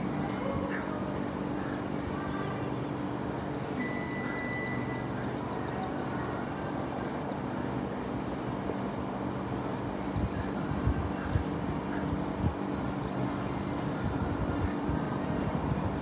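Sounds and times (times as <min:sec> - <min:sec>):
thin whistle-like tone: 0:00.0 - 0:06.6, 0:08.7 - 0:09.2, 0:09.8 - 0:10.4
low motor hum: 0:00.0 - 0:16.0.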